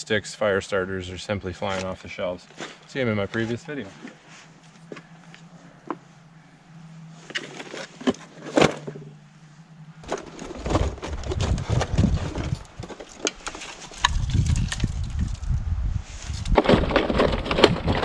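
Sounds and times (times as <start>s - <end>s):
wood clattering and rustling: 7.2s - 9.2s, 10.0s - 15.5s, 16.2s - 18.0s
low rumble: 8.9s - 12.9s, 14.0s - 16.9s.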